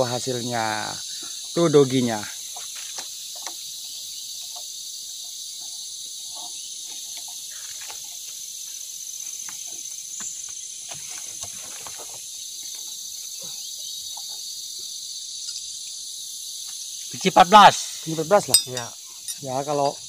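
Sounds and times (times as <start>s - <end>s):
insects chorus: 0.0s - 20.0s.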